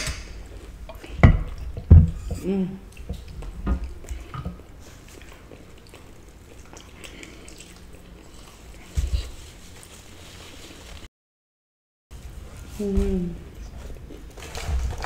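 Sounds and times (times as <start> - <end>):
faint chewing: 0.4 - 11.1.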